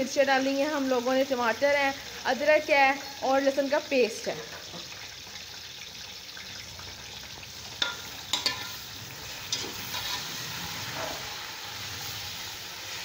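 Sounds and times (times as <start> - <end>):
chicken sizzling in a pot: 0.0 - 13.0
spoon knocking against pot: 7.8 - 8.7.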